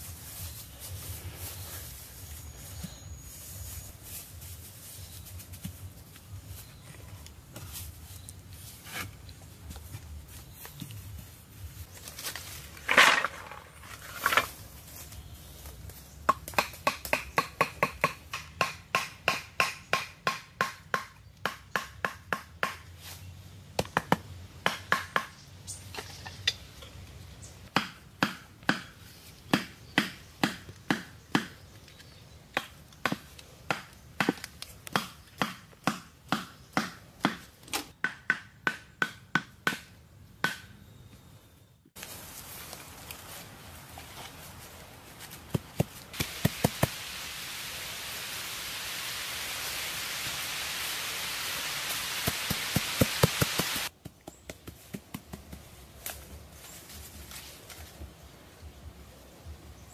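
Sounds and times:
club knocking bamboo stakes: 16.2 - 22.9, 23.8 - 26.6, 27.7 - 31.6, 32.5 - 40.8.

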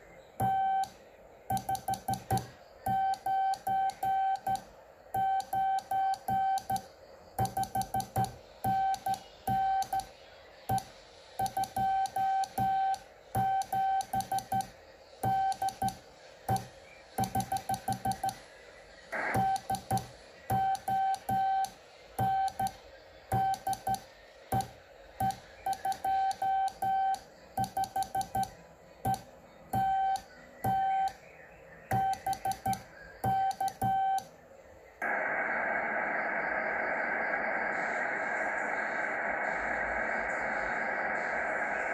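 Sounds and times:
sharp keying clicks: 0.4 - 4.7, 5.4 - 10.1, 15.5 - 18.4, 23.5 - 31.2, 31.9 - 34.3
morse code beeps: 0.4 - 10.1, 10.7 - 18.4, 19.3 - 31.2, 31.9 - 34.3.

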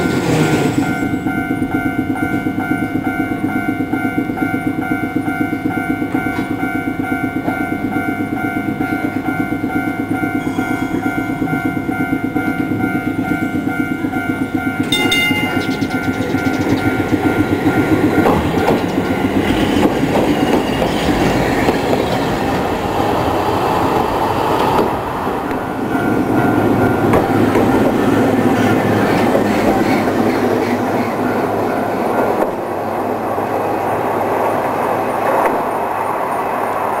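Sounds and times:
crossing warning alarm ringing: 0.0 - 21.4, 25.3 - 28.8
tram wheels clattering over rails: 0.0 - 37.0.

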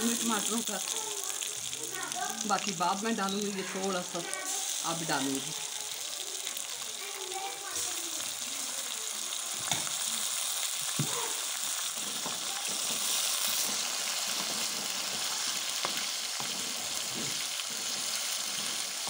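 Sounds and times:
hot oil sizzling in a pot: 0.0 - 19.0
wooden spatula scraping a pot: 12.0 - 19.0.

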